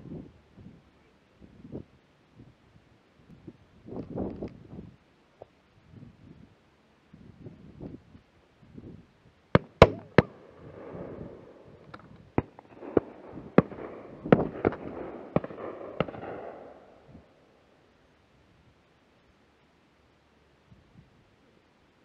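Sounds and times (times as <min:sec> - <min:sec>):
shotgun shots: 0:09.6 - 0:11.7, 0:12.4 - 0:17.0.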